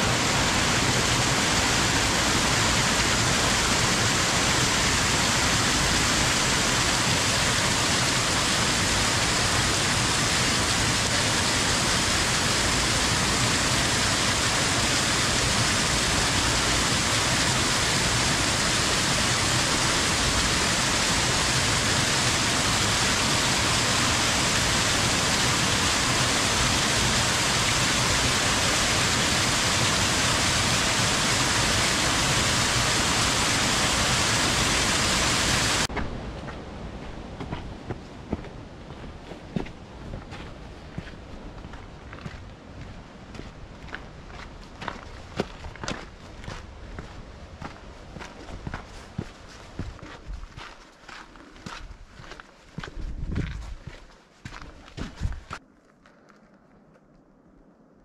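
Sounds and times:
waterfall rushing: 0:00.0 - 0:35.9.

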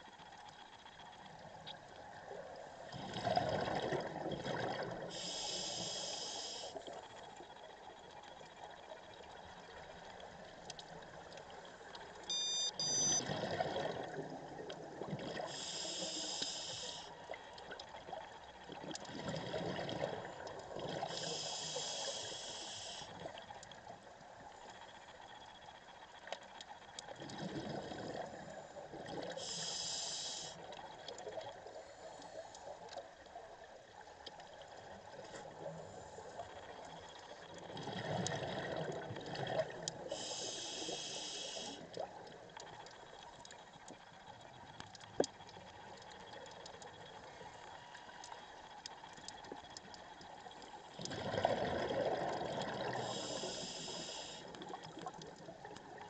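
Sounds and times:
exhaled air bubbling: 0:02.1 - 0:07.1, 0:12.3 - 0:23.5, 0:27.1 - 0:32.1, 0:35.0 - 0:44.7, 0:48.6 - 0:56.0
regulator inhale hiss: 0:05.1 - 0:06.8, 0:15.4 - 0:17.2, 0:21.0 - 0:23.2, 0:29.3 - 0:30.7, 0:40.1 - 0:41.9, 0:52.9 - 0:54.7.

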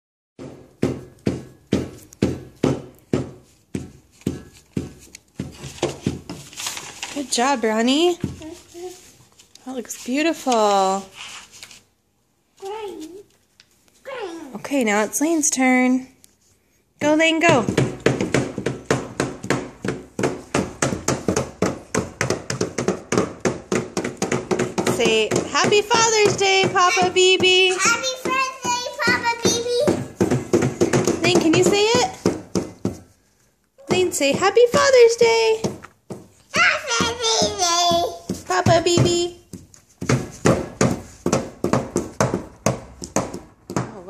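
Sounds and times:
marker tapping on paper: 0:00.4 - 0:06.7, 0:07.4 - 0:08.5, 0:17.0 - 0:33.2, 0:33.8 - 0:44.0.

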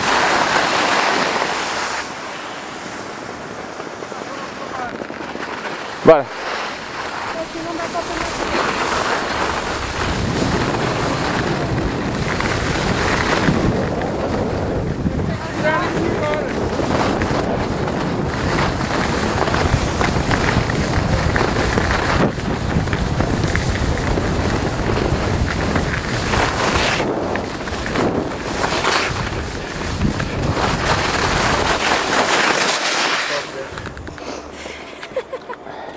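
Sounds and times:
wind buffeting microphone: 0:00.0 - 0:32.7, 0:33.4 - 0:34.5
skis scraping over snow: 0:00.0 - 0:34.6.

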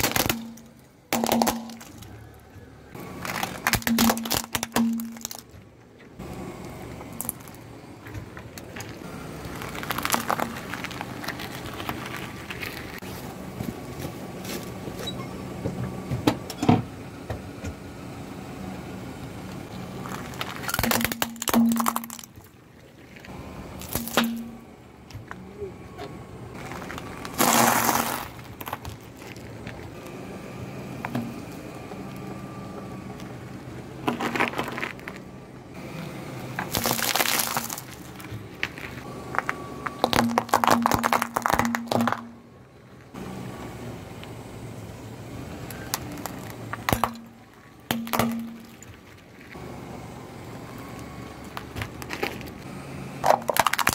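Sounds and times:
tyre crushing objects: 0:00.0 - 0:02.2, 0:08.1 - 0:14.7, 0:26.6 - 0:29.8, 0:34.0 - 0:35.2, 0:36.6 - 0:42.4, 0:53.2 - 0:53.9
low engine hum: 0:00.0 - 0:53.9.

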